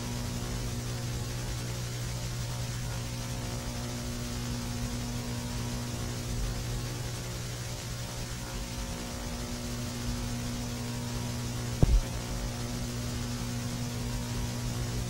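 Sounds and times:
low electrical hum: 0.0s - 15.0s
short pop: 11.8s - 12.1s.

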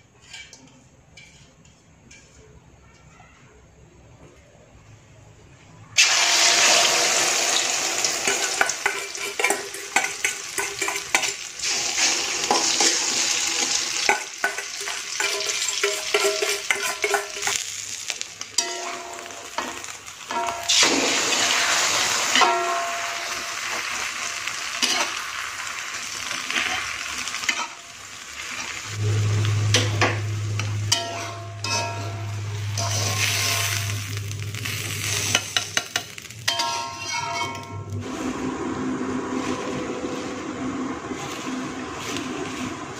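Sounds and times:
metal spatula scraping wok: 0.1s - 2.4s, 8.0s - 23.7s, 24.4s - 25.5s, 26.1s - 42.9s
egg sizzling in hot oil: 6.0s - 37.5s.

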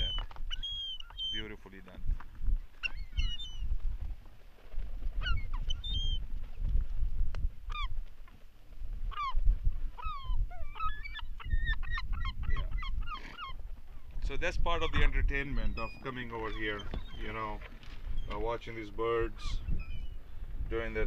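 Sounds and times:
gulls calling: 0.0s - 2.0s, 2.7s - 3.8s, 5.2s - 6.3s, 9.1s - 21.0s.

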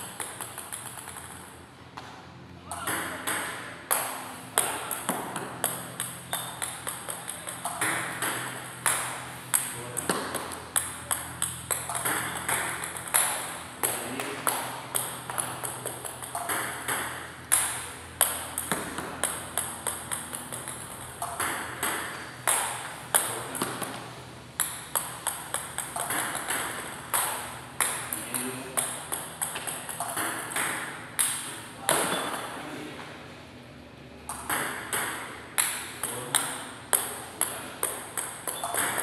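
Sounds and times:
table tennis ball clicking: 0.0s - 1.5s, 2.7s - 23.9s, 24.6s - 32.5s, 34.3s - 39.0s.

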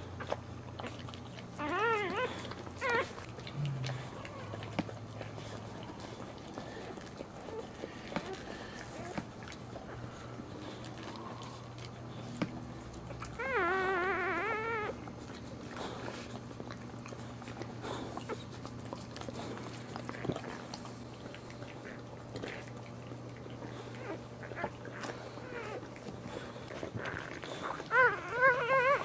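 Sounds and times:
small squeaks and rustles: 0.0s - 29.0s
steady low hum: 0.0s - 29.0s
puppy squealing cry: 1.6s - 3.2s, 13.4s - 15.0s, 27.0s - 29.0s.

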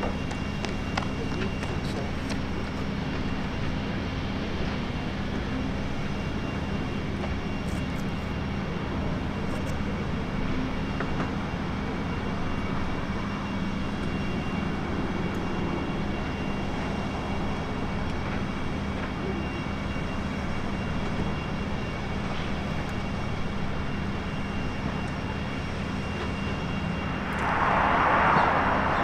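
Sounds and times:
turboprop aircraft engines humming: 0.0s - 29.0s.

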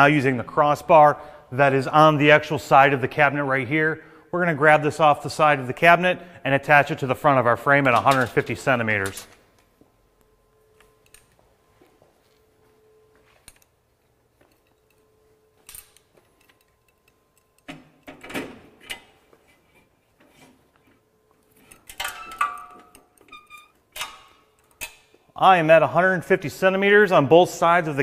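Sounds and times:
metal bar clicks and knocks: 21.6s - 25.1s.

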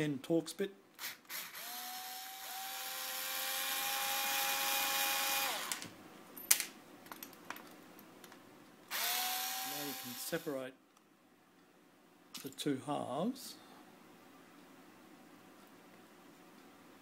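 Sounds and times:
cordless screwdriver whirring: 1.0s - 5.8s, 8.9s - 10.4s.

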